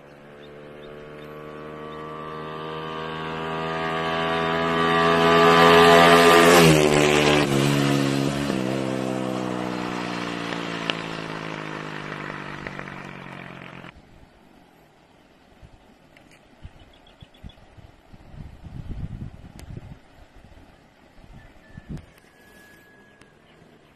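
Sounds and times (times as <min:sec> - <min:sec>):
motorcycle engine passing by: 0:00.0 - 0:13.9.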